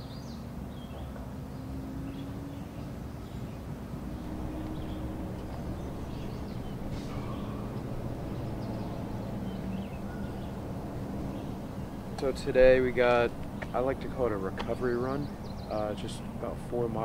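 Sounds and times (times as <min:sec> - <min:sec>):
low mechanical hum: 0:00.8 - 0:17.0
held low tones: 0:04.0 - 0:16.8
faint bird chirps: 0:04.4 - 0:10.6.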